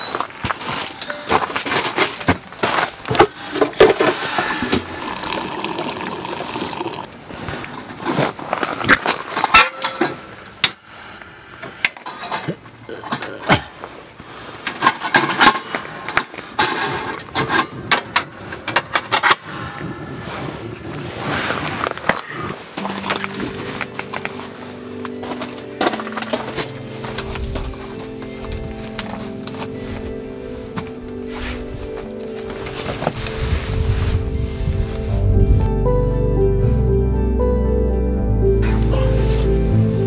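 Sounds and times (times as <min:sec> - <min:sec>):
rustling: 0:00.0 - 0:05.3, 0:20.2 - 0:35.4.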